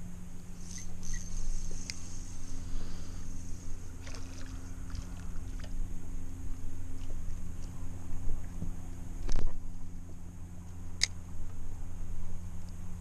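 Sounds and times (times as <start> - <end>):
electric motor humming: 0.4 - 7.6.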